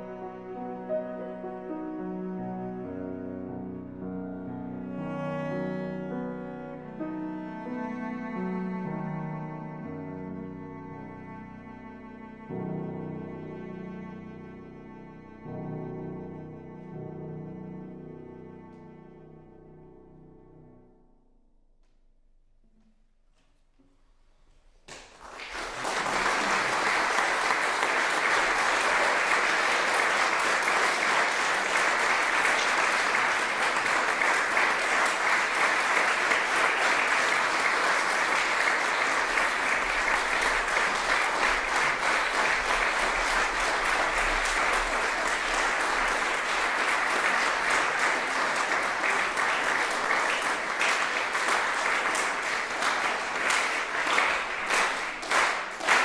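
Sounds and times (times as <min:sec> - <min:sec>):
audience applause: 0:24.9 - 0:56.0.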